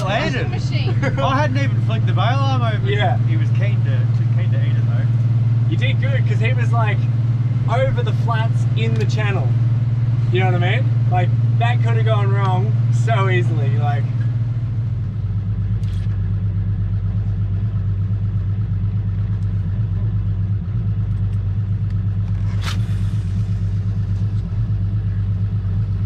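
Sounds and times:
outboard engine running: 0:00.0 - 0:20.4.

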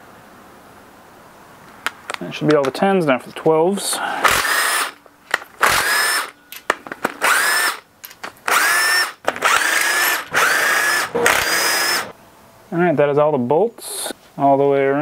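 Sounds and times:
cordless power tool motor whine: 0:04.2 - 0:05.0, 0:05.6 - 0:06.4, 0:07.2 - 0:07.8, 0:08.4 - 0:12.1.

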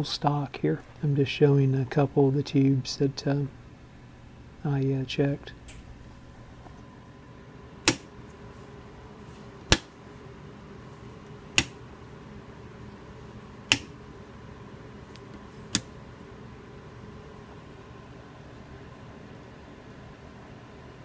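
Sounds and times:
rotary switch clicking: 0:13.7 - 0:14.0.

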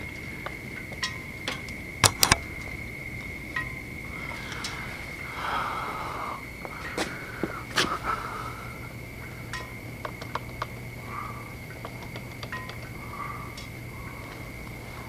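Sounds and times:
faint high whine: 0:00.0 - 0:15.0
small clicks: 0:01.0 - 0:02.7, 0:11.7 - 0:14.8.

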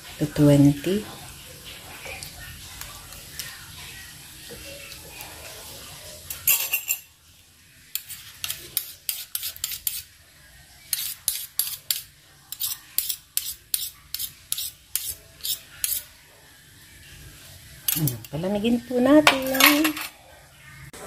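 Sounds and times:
spoon stirring batter in a bowl: 0:07.8 - 0:16.7.

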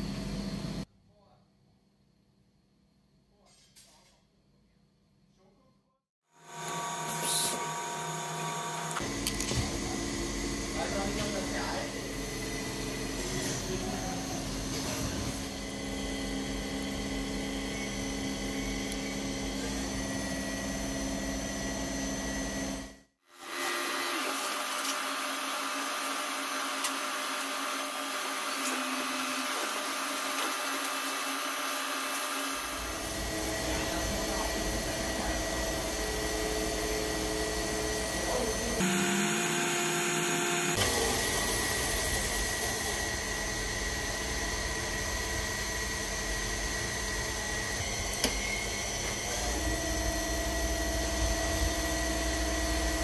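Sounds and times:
machine whirring: 0:06.4 - 0:20.0, 0:26.0 - 0:50.7.

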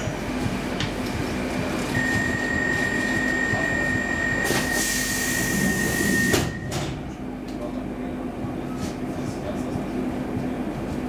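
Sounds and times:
train hum: 0:00.0 - 0:11.0
high warning beep: 0:02.0 - 0:06.8.

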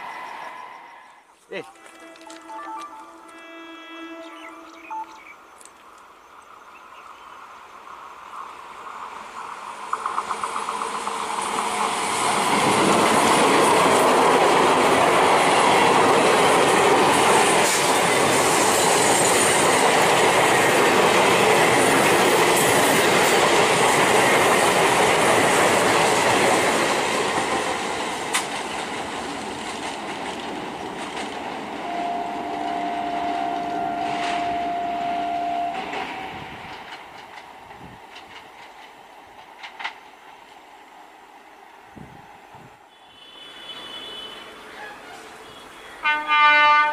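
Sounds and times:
electric train passing: 0:00.0 - 0:46.9
train horn: 0:01.6 - 0:05.2, 0:31.8 - 0:36.8, 0:42.9 - 0:46.9
train wheels clattering over rail joints: 0:09.8 - 0:31.8, 0:35.8 - 0:40.6.

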